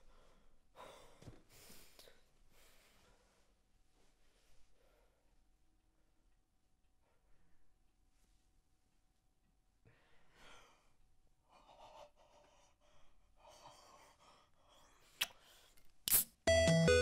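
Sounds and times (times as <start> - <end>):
chiptune game music: 16.5 - 17.0.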